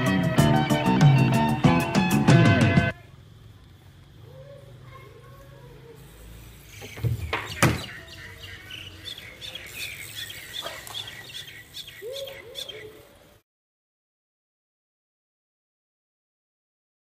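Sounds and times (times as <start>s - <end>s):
bird chirping: 6.3s - 13.2s
bike wheels hitting wooden box: 6.7s - 8.2s.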